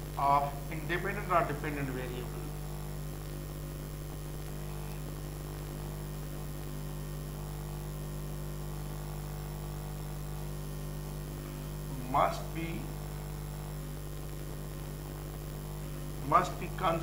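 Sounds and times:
electrical mains hum: 0.0 - 17.0
faint hiss: 10.9 - 13.4, 14.2 - 17.0.

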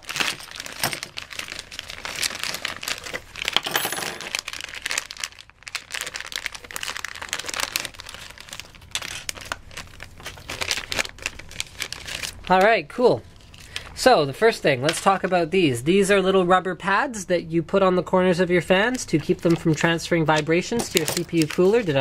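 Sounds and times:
plastic bags crinkling: 0.0 - 14.1, 19.0 - 22.0.

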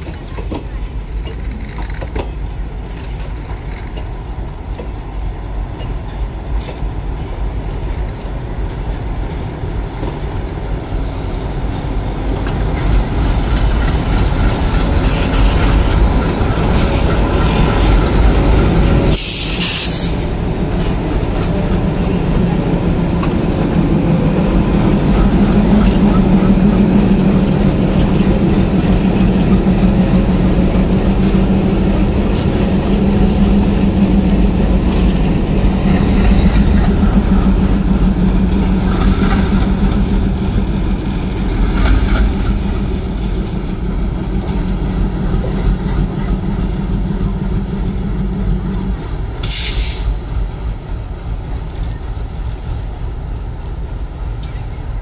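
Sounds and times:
diesel locomotive engine drone: 0.0 - 55.0
sharp hiss of air: 19.1 - 20.3, 49.4 - 50.2.

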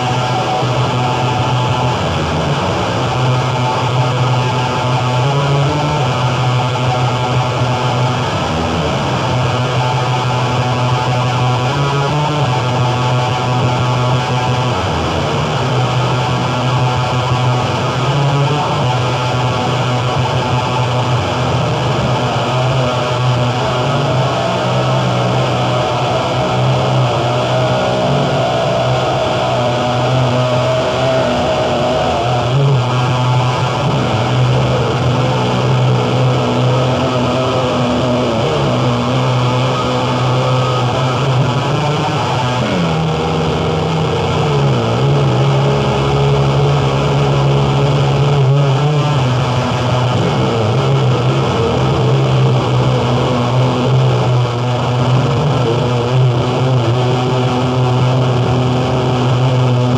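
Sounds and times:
distorted noise wall: 0.0 - 59.9
low drone: 0.0 - 59.9.

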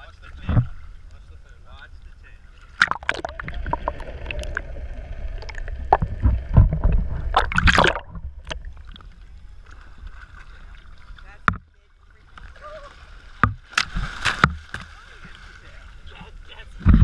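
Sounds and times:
water sloshing and gurgling: 0.0 - 17.0
loud churning splash: 2.8 - 8.6.

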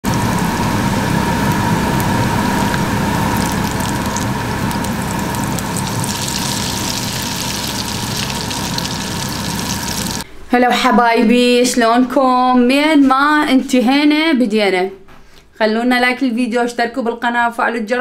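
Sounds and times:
steady hum: 0.0 - 10.6
food sizzling in hot oil: 0.1 - 10.2.

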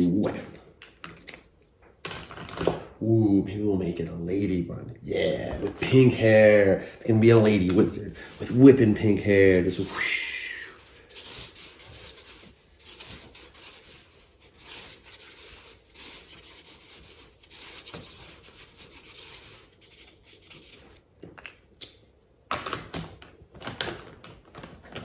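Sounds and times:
marker scratching on paper: 7.7 - 10.0, 10.7 - 21.0.

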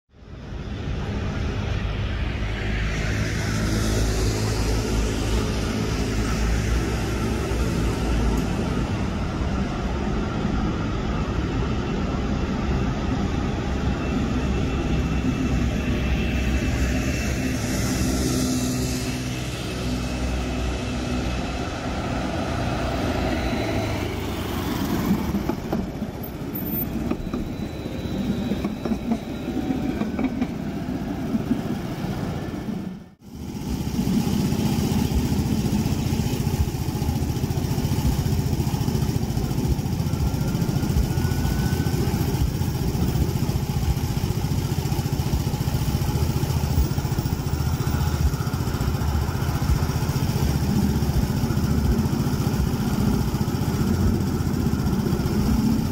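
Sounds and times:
street traffic rumble: 0.1 - 55.9
tram running on track: 0.1 - 55.9
motor scooter idling: 33.3 - 55.9.

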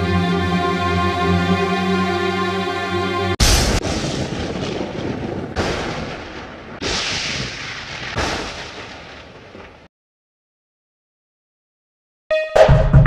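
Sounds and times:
background music: 0.0 - 3.4
crashing booms: 3.4 - 9.9.

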